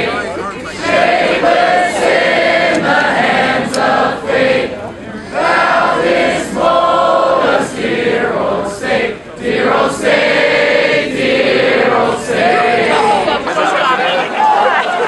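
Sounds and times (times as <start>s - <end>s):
crowd singing together: 0.0s - 15.0s.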